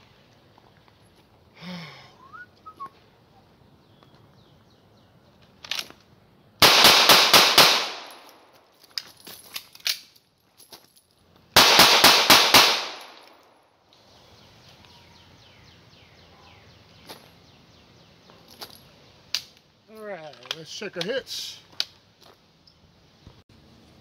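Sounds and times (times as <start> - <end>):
pistol shots: 6.6 - 8.4, 11.6 - 13.2.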